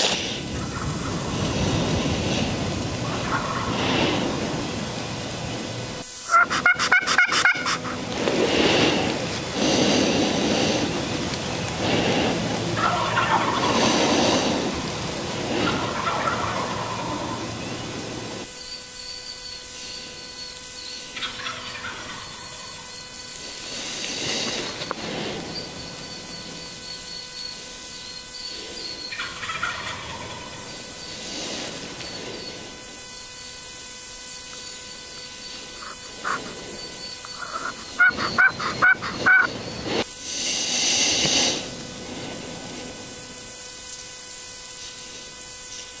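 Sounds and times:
turkeys gobbling: 0.4s - 4.8s, 6.2s - 18.5s, 21.1s - 27.0s, 28.1s - 32.8s, 35.4s - 40.1s.

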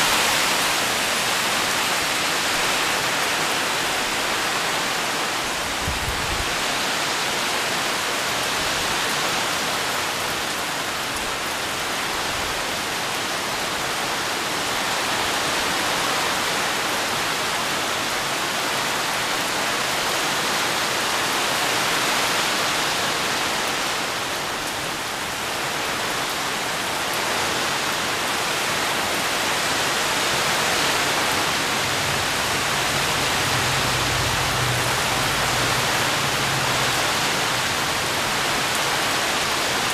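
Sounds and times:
heavy rain on foliage: 0.0s - 39.9s.

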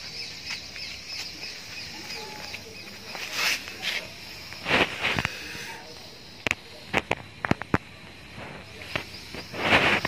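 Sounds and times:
small birds chirping: 0.0s - 10.0s
rustling: 0.4s - 5.8s, 8.4s - 10.0s.

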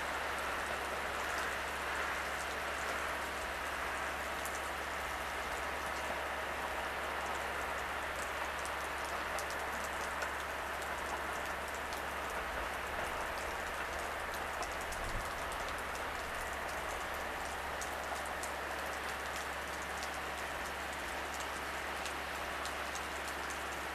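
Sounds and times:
faint ticks: 13.0s - 23.7s.

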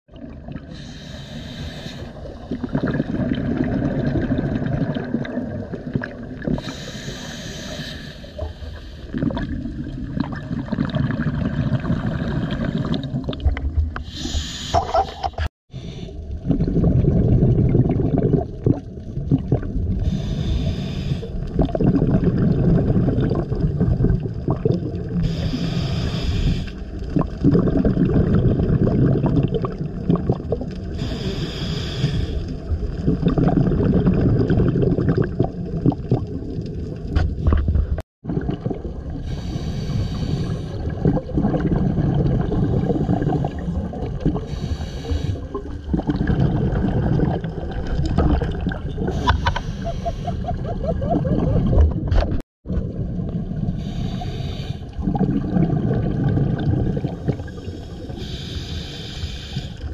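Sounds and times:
regulator inhale hiss: 0.7s - 2.3s, 6.6s - 9.1s, 14.0s - 16.2s, 20.0s - 21.5s, 25.2s - 26.9s, 30.9s - 32.5s, 39.2s - 40.9s, 44.5s - 45.6s, 49.1s - 50.5s, 53.8s - 55.0s, 57.3s - 59.9s
gurgling exhaust bubbles: 2.3s - 6.6s, 9.1s - 14.0s, 16.4s - 20.1s, 21.5s - 25.3s, 27.1s - 30.8s, 32.7s - 39.6s, 40.7s - 44.6s, 45.4s - 53.9s, 55.0s - 57.7s.

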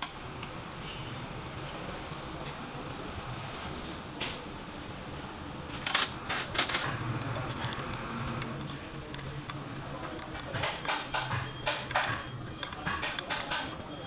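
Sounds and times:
spanner clinking on metal: 5.9s - 14.0s.

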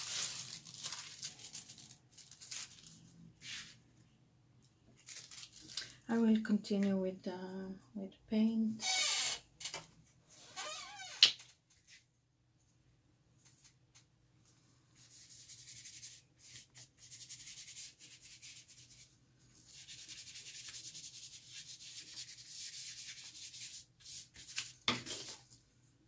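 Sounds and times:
paintbrush scratching on paper: 15.0s - 25.4s.

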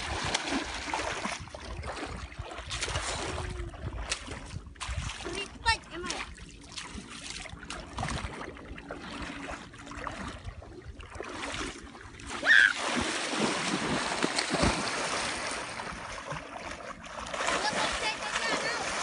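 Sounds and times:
loud splash: 0.0s - 2.0s, 12.3s - 16.4s, 17.2s - 19.0s
water sloshing around wader: 0.0s - 19.0s.

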